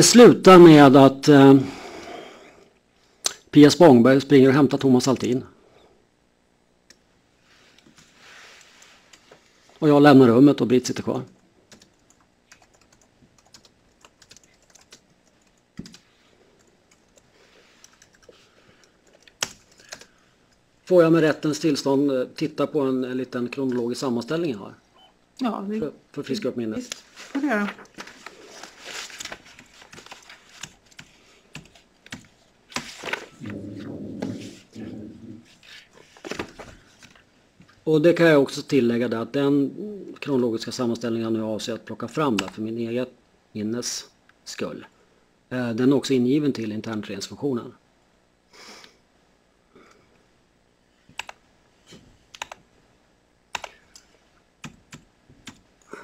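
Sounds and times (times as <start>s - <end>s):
laptop keys tapping: 11.7s - 20.1s, 29.2s - 32.9s, 51.1s - 51.4s, 52.3s - 52.6s, 53.5s - 55.6s.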